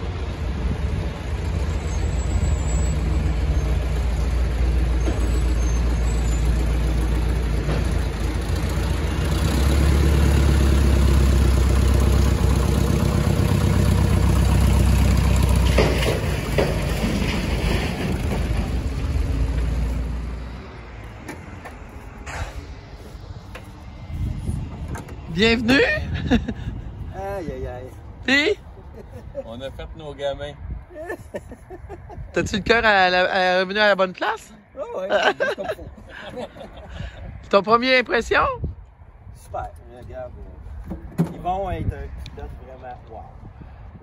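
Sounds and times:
propeller plane engine droning: 0:06.5 - 0:25.8.

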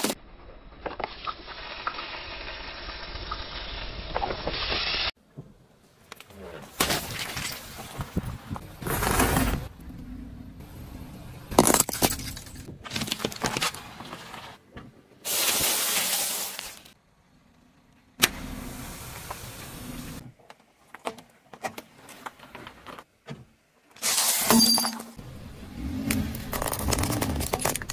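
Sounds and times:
tyre crushing small objects: 0:11.5 - 0:14.6, 0:26.1 - 0:27.9.

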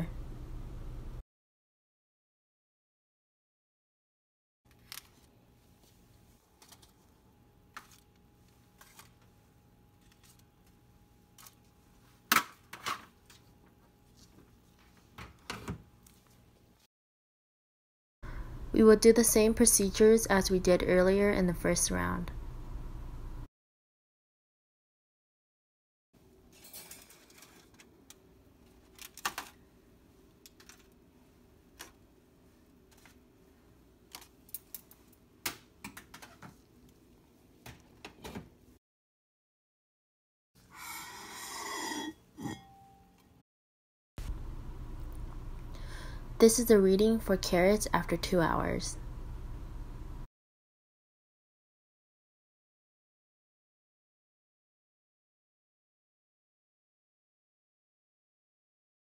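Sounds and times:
low steady hum: 0:00.0 - 0:01.2, 0:18.3 - 0:23.5, 0:44.2 - 0:50.3
foil trays clinking and scraping: 0:26.5 - 0:27.8.

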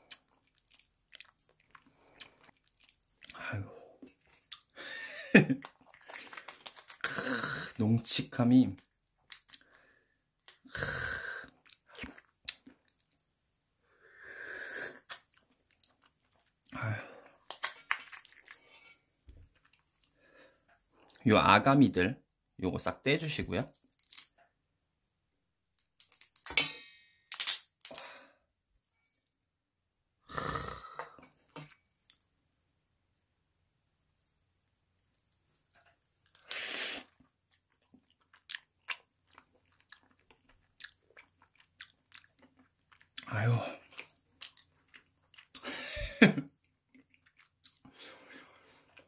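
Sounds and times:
person crunching and chewing: 0:00.0 - 0:03.4, 0:04.0 - 0:07.8, 0:09.2 - 0:09.9, 0:10.5 - 0:13.2, 0:15.0 - 0:20.2, 0:23.7 - 0:24.4, 0:35.5 - 0:46.0, 0:46.6 - 0:49.0
crab shell cracking: 0:05.6 - 0:07.1, 0:17.4 - 0:18.6, 0:27.3 - 0:28.1.

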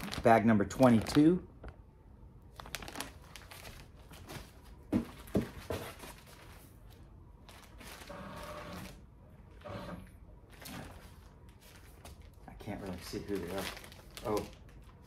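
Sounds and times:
plastic bags rustling and crinkling: 0:00.0 - 0:01.8, 0:02.5 - 0:08.2, 0:10.5 - 0:15.0
plastic crackles: 0:00.0 - 0:04.6, 0:05.2 - 0:08.1, 0:10.5 - 0:15.0.

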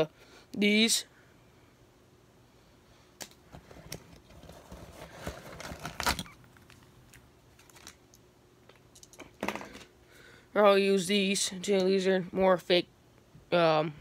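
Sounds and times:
plastic packaging crinkling: 0:04.2 - 0:08.2.

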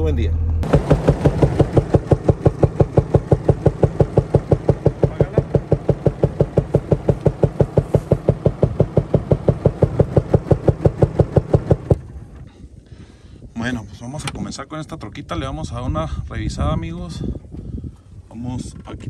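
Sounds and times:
diesel engine idling with knock: 0:00.5 - 0:12.5.

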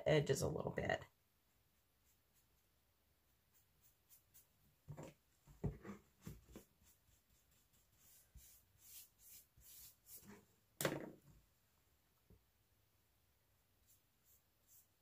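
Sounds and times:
brush dabbing paint on cardboard: 0:01.1 - 0:10.5, 0:13.7 - 0:15.0.

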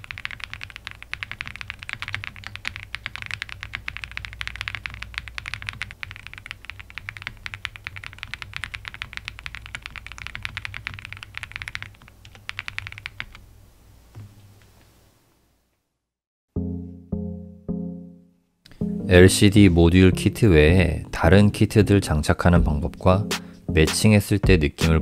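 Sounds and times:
mechanical keyboard typing: 0:00.0 - 0:13.4.

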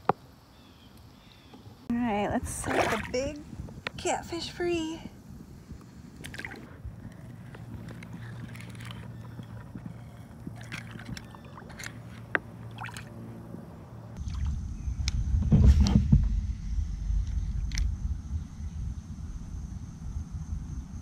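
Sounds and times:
water sloshing and splashing: 0:02.4 - 0:03.8, 0:06.1 - 0:13.4, 0:14.2 - 0:14.6
low rumble: 0:06.6 - 0:21.0.

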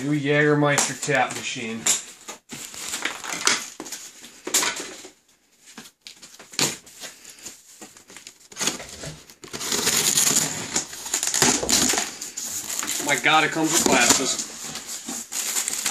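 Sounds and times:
crinkling and rustling: 0:00.6 - 0:15.9
cardboard box scraping: 0:08.5 - 0:15.9.

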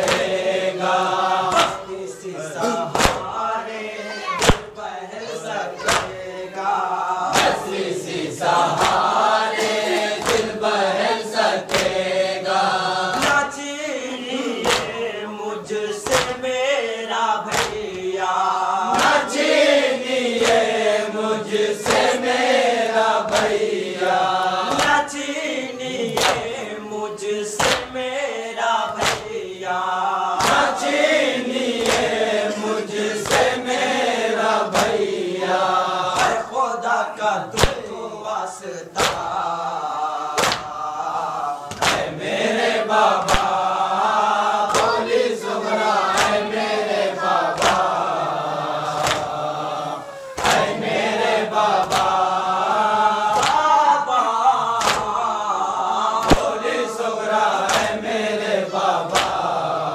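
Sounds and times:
chest-beating slaps: 0:00.0 - 0:00.5, 0:01.4 - 0:02.0, 0:02.6 - 0:03.4, 0:04.4 - 0:04.8, 0:05.8 - 0:06.2, 0:07.2 - 0:07.8, 0:08.5 - 0:10.7, 0:11.6 - 0:12.2, 0:13.0 - 0:13.6, 0:14.5 - 0:15.1, 0:15.9 - 0:16.6, 0:17.5 - 0:18.1, 0:18.9 - 0:19.5, 0:20.3 - 0:21.0, 0:21.8 - 0:22.3, 0:23.2 - 0:25.2, 0:26.0 - 0:26.6, 0:27.6 - 0:28.0, 0:28.9 - 0:29.4, 0:30.4 - 0:31.1, 0:31.7 - 0:33.9, 0:34.7 - 0:35.2, 0:36.1 - 0:36.5, 0:37.5 - 0:38.0, 0:39.0 - 0:39.4, 0:40.3 - 0:40.8, 0:41.7 - 0:43.7, 0:44.6 - 0:45.3, 0:46.0 - 0:46.6, 0:47.5 - 0:48.1, 0:48.8 - 0:49.4, 0:50.3 - 0:52.3, 0:53.3 - 0:53.7, 0:54.8 - 0:55.2, 0:56.2 - 0:56.8, 0:57.6 - 0:58.1, 0:59.0 - 0:59.6
voices chanting a lament: 0:00.0 - 0:59.9.

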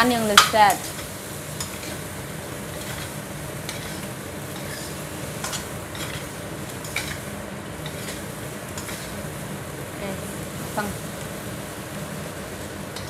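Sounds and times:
food sizzling in a wok: 0:00.0 - 0:13.0
metal spatula scraping wok: 0:00.3 - 0:09.3.

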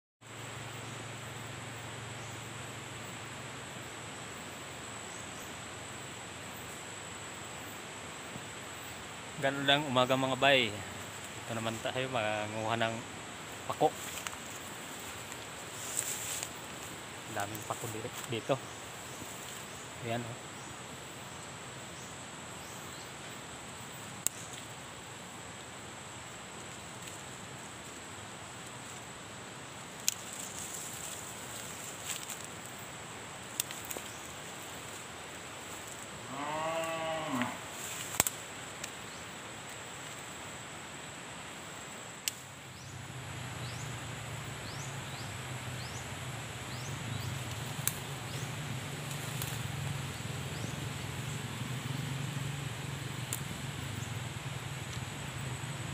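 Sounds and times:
distant cow mooing: 0:36.2 - 0:37.7.

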